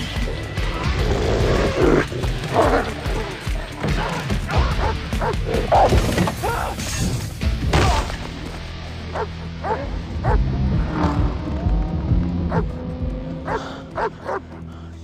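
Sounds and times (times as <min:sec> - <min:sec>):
low music drone: 0:00.0 - 0:15.0
dog barking and snarling: 0:00.9 - 0:06.0, 0:09.1 - 0:11.0, 0:12.5 - 0:12.8, 0:13.4 - 0:14.6.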